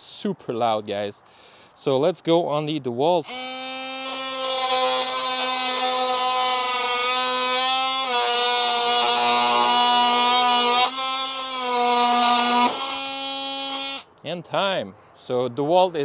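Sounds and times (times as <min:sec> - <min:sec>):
oscillating multi-tool cutting wood: 0:03.2 - 0:14.1.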